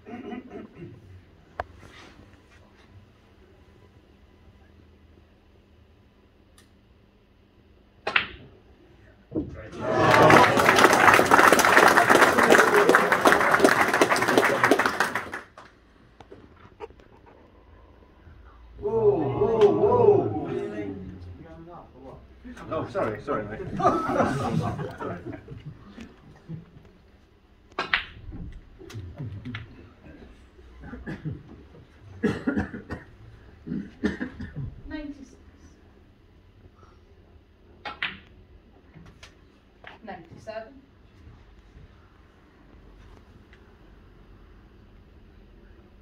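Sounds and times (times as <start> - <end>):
audience applauding: 9.8 - 15.7
snooker balls clicking: 27.7 - 29.9, 37.8 - 38.4.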